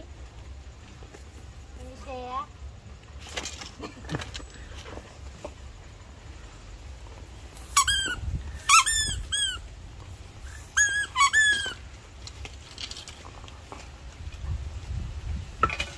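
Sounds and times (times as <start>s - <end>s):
squeaky toy squeaks: 7.6s - 9.7s, 10.4s - 11.9s.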